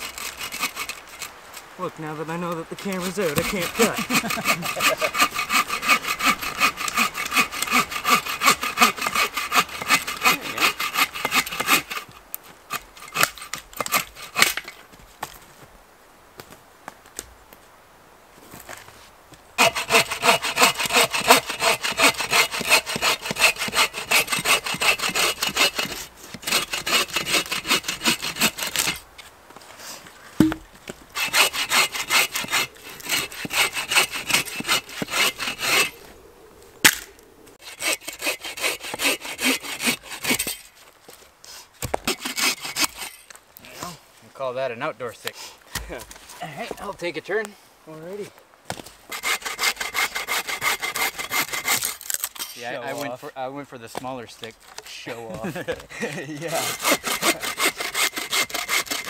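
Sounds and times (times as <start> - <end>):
hand saw cutting wood: 0.0 - 1.7, 2.5 - 14.8, 19.6 - 29.0, 31.1 - 36.1, 36.9 - 40.7, 41.8 - 43.3, 49.1 - 53.1, 55.5 - 59.0.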